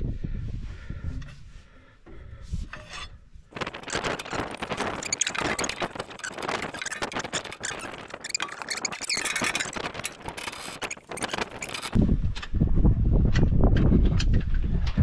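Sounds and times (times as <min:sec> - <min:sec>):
ratchet squeaks: 0:03.6 - 0:12.0.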